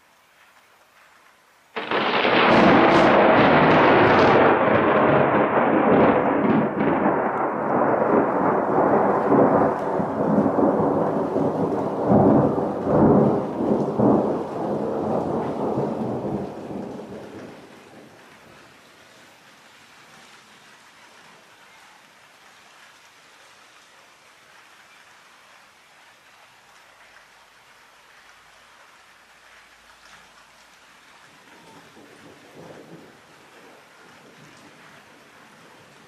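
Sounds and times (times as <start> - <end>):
thunderclap with rolling rumble: 1.8 - 18.5, 31.6 - 36.0.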